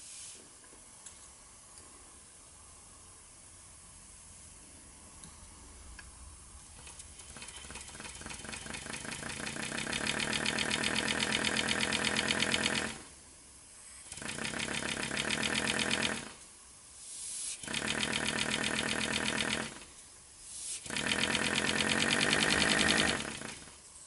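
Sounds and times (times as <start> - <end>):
model radial engine exhaust puffs: 16.9 - 23.7.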